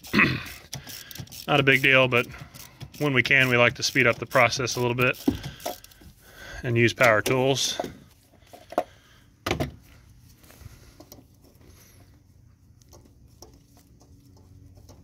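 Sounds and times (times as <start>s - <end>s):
ratchet clicking: 0.4s - 6.0s.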